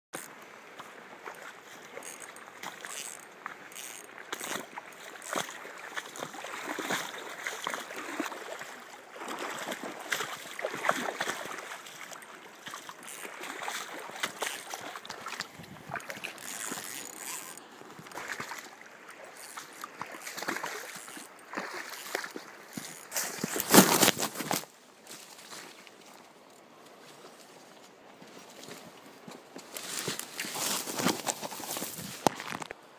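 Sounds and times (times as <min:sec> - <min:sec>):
river water rushing: 0:00.2 - 0:23.9
short splashes: 0:01.2 - 0:24.7.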